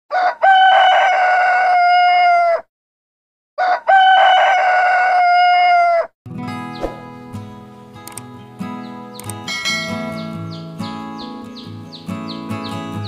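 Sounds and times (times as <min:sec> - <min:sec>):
rooster crowing: 0:00.1 - 0:02.7, 0:03.6 - 0:06.1.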